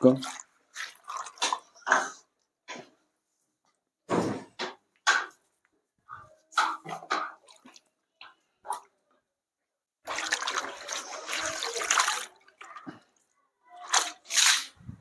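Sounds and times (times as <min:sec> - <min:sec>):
short knocks and splashes: 0:06.5 - 0:07.9
water poured out of a basin: 0:10.0 - 0:13.2, 0:13.8 - 0:14.8.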